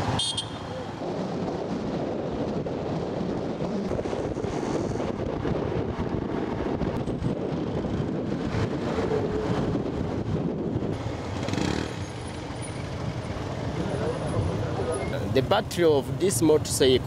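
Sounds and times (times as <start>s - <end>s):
road and traffic noise: 0.0s - 17.0s
wind buffeting microphone: 0.9s - 11.8s.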